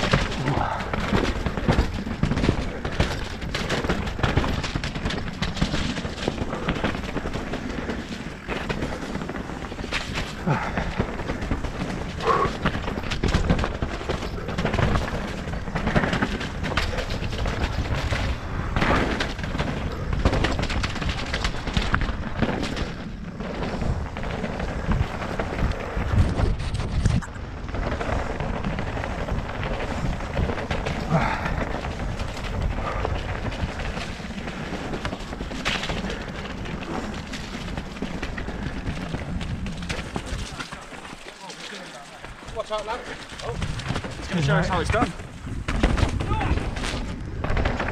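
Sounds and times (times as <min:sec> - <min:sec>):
wind rumble on microphone: 0:00.0 - 0:41.2, 0:42.2 - 0:47.9
bike tyres knocking on rocks: 0:00.0 - 0:47.9.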